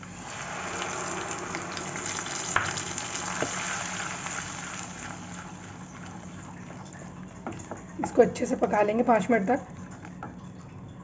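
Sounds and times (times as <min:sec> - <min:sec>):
paste sizzling in hot oil: 0:00.0 - 0:06.4.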